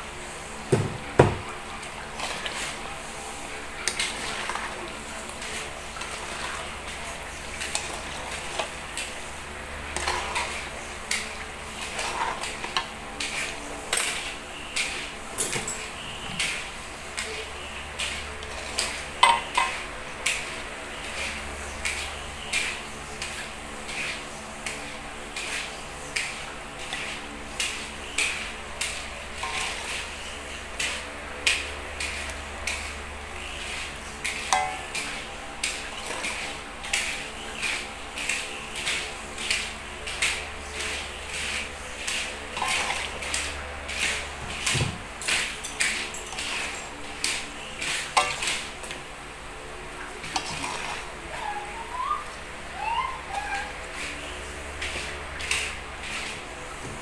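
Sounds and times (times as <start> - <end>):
frying sizzle: 0.0 - 52.9
metal spatula scraping wok: 9.9 - 10.7, 11.8 - 14.3.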